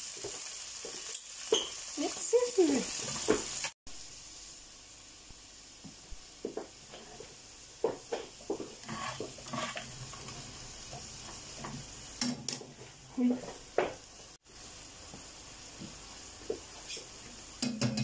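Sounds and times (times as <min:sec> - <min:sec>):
food sizzling in a frying pan: 0:00.0 - 0:18.0
spatula scraping and knocking pan: 0:06.4 - 0:14.0.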